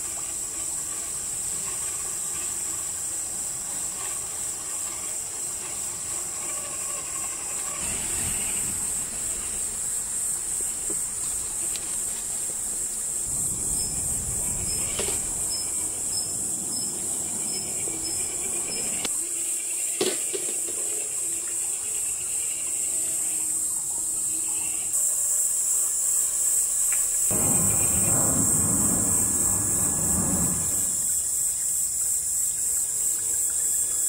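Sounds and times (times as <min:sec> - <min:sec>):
crickets chirping: 0:00.0 - 0:34.0
low rumble: 0:27.3 - 0:31.2.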